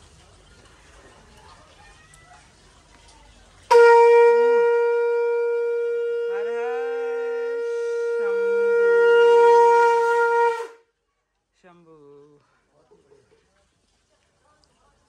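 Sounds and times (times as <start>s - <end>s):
conch shell blown: 3.7s - 10.9s.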